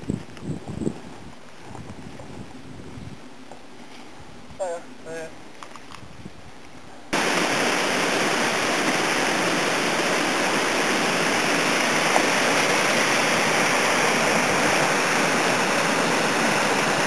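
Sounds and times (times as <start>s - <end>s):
stream rushing over cascade: 7.1s - 17.0s.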